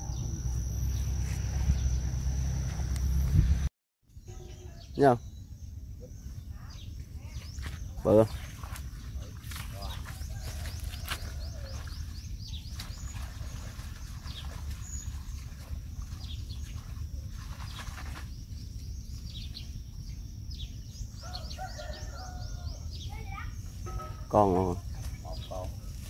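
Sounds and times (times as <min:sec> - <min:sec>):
steady high whine: 0:00.0 - 0:03.7
small birds chirping: 0:00.0 - 0:26.0.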